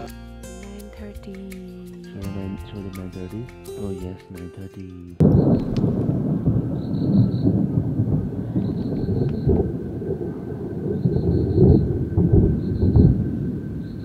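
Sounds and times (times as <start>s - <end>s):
thunder rumbling: 5.2s - 14.0s.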